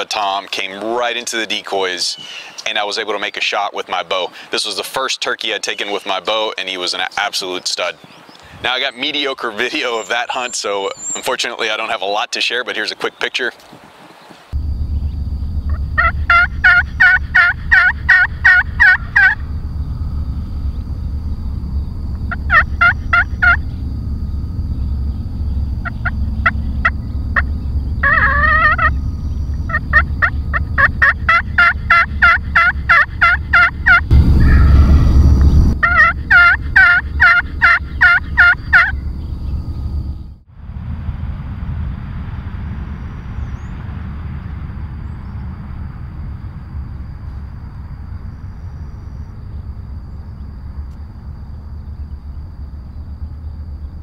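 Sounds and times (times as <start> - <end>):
low wind rumble: 13.7 - 54.0
turkey gobbling: 15.7 - 19.4, 22.3 - 23.8, 25.8 - 34.7, 35.8 - 39.0.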